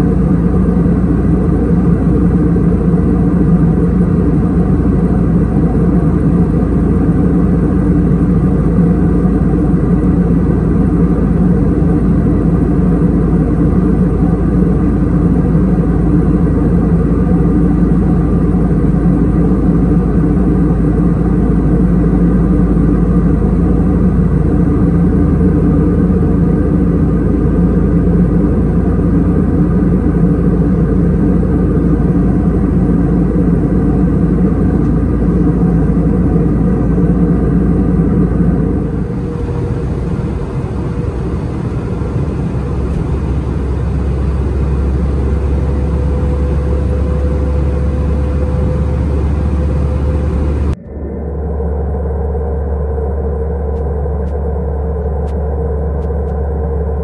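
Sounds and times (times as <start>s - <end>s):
airliner cabin engine drone: 0.0s - 57.0s.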